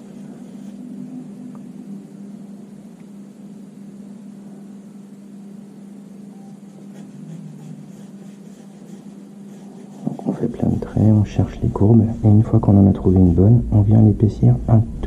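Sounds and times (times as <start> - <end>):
steady low hum: 0.0 - 15.0
pencil scratching on paper: 6.6 - 10.9.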